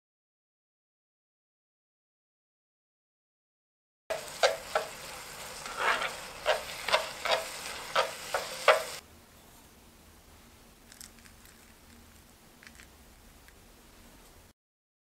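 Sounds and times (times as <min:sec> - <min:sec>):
noodles sizzling in frying pan: 0:04.1 - 0:09.0
stirring strokes in pan: 0:04.1 - 0:09.0.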